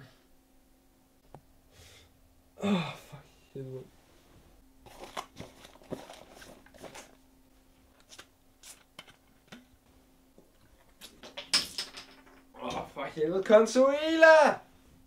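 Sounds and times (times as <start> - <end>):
clothing rustling: 3.9 - 8.9
plastic bottle crinkling: 4.8 - 7.2.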